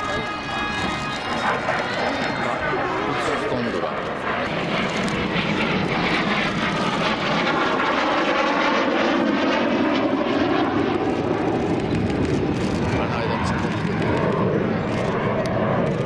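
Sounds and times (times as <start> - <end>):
jet engines roaring overhead: 0.0 - 16.0.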